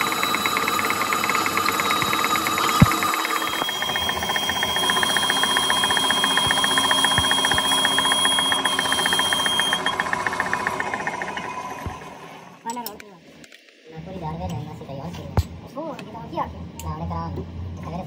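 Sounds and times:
rapid regular ticking: 0.0s - 12.3s
metal lathe running: 0.0s - 12.6s
thin high whine: 0.0s - 12.6s.

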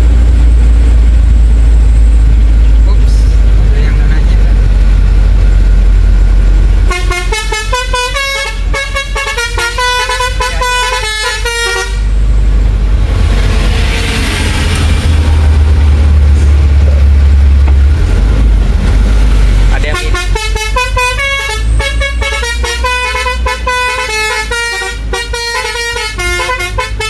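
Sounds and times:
truck engine rumble: 0.0s - 27.0s
multi-tone horn playing tune: 6.8s - 12.1s, 19.9s - 27.0s.

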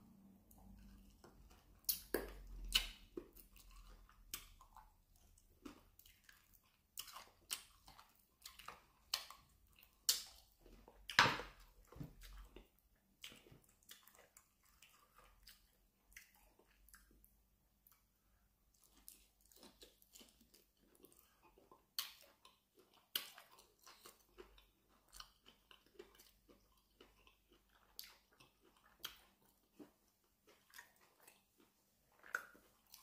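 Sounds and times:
man chewing with wet smacks: 0.2s - 33.0s.

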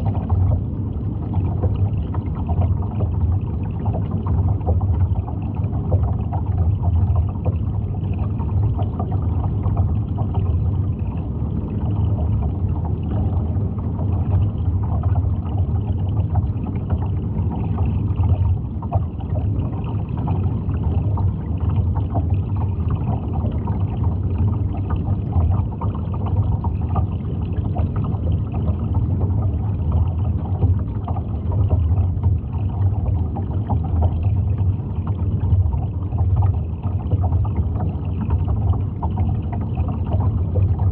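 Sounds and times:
crackle of moving water: 0.0s - 40.9s
underwater hum: 0.0s - 40.9s.

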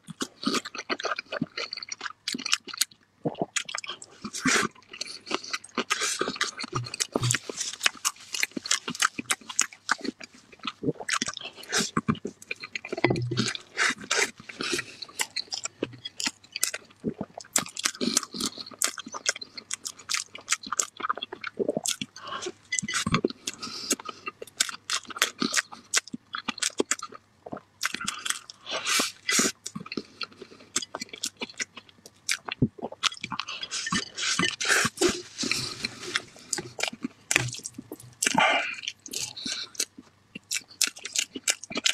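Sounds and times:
man chewing and lip smacking: 0.0s - 41.9s
wet mouth clicks: 32.3s - 41.9s.

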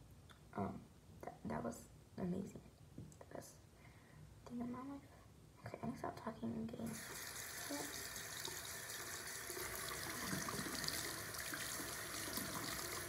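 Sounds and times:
tap running into sink: 7.0s - 13.0s.

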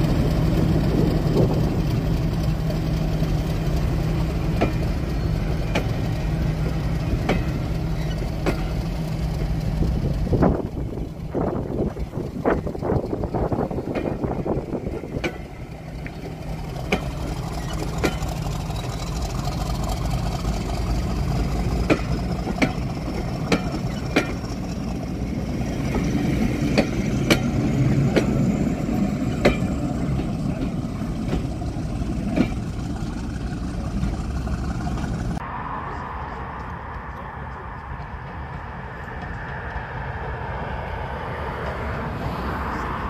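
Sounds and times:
wheels clicking over rail joints: 0.0s - 35.4s
train coaches rumbling: 0.0s - 43.0s
faint high whine: 35.4s - 39.4s.

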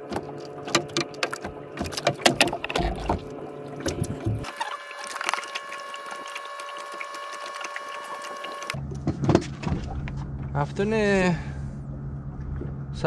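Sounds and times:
low rumble: 8.8s - 13.0s.

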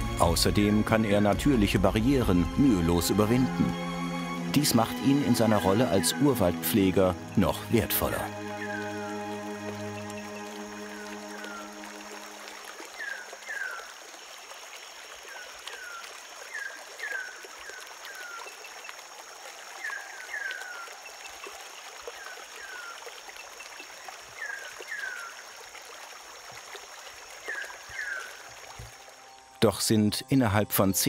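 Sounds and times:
moving water: 0.0s - 31.0s
high insect drone: 3.4s - 16.6s.

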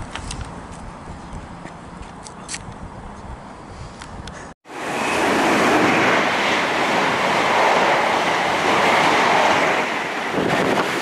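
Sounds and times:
train wheels on rails: 4.7s - 11.0s.

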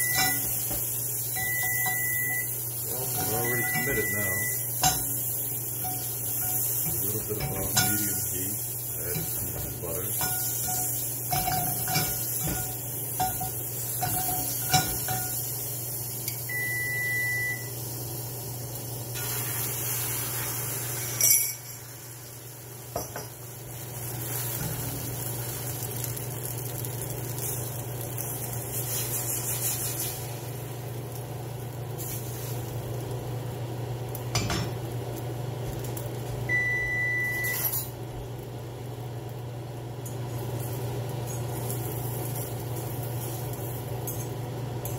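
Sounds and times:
pan and utensils clinking: 0.0s - 15.5s, 21.0s - 21.9s
steady low hum: 0.0s - 19.2s.

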